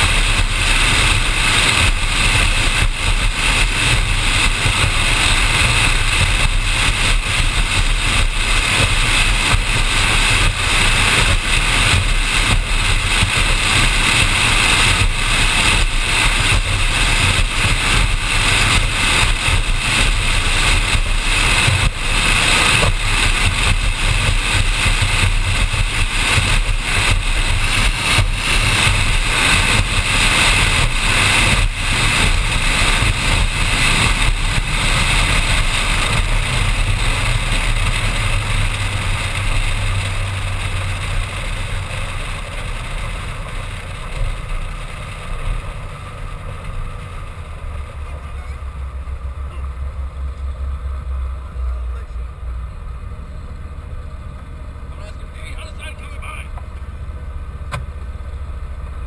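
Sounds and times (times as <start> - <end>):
wind and spray rushing: 0.0 - 48.0
powerboat engine drone: 0.0 - 59.0.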